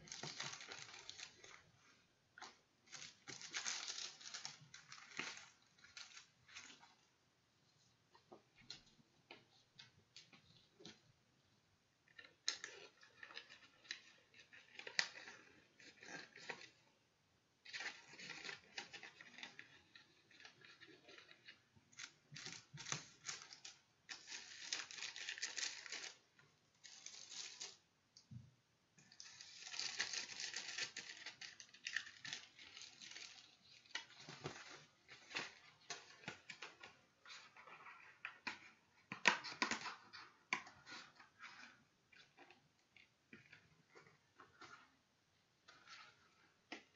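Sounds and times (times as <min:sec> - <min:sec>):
paper rustling: 0:00.0 - 0:01.7, 0:17.7 - 0:26.2.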